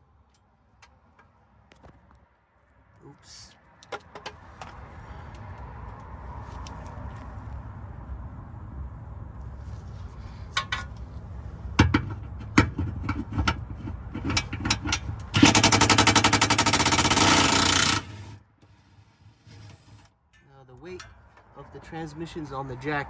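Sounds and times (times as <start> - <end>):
metallic clicks and knocks: 3.8 - 4.8, 10.5 - 11.0, 11.8 - 17.2
impact wrench hammering: 14.3 - 18.3.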